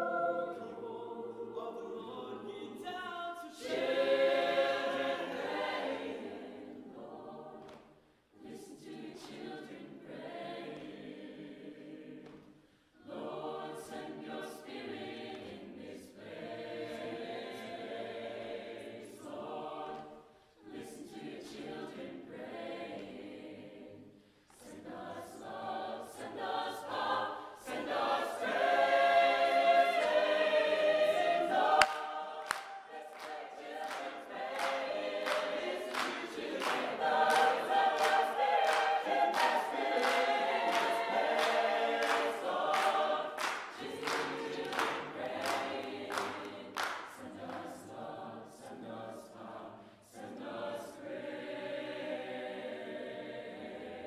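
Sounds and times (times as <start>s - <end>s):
choir singing in harmony: 0.0s - 54.0s
hands clapping on a beat: 7.6s - 8.1s, 8.8s - 9.7s, 10.7s - 11.0s, 12.2s - 12.7s, 19.8s - 20.2s, 29.5s - 30.5s, 31.1s - 48.0s.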